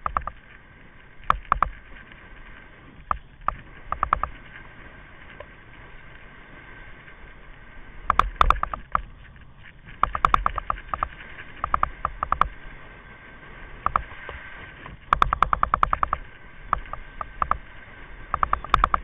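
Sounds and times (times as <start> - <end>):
kite buggy rolling over sand: 0.0 - 19.0
sharp rattling knocks: 10.0 - 12.5.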